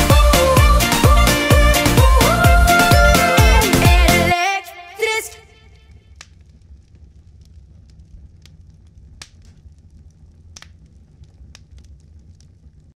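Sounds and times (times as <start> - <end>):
music: 0.0 - 5.2
faint low hum: 5.4 - 12.9
sharp crackles and clicks: 5.8 - 12.9.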